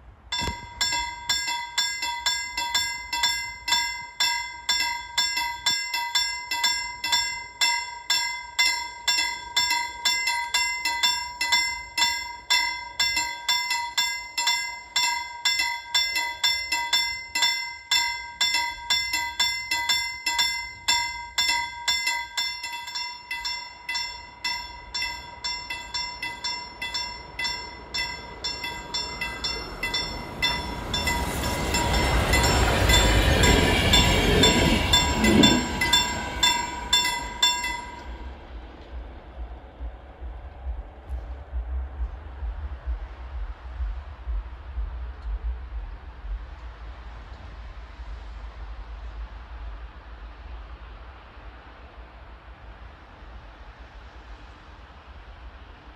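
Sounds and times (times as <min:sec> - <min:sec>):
train rumble: 0:00.0 - 0:55.9
level-crossing warning bell: 0:00.3 - 0:38.9.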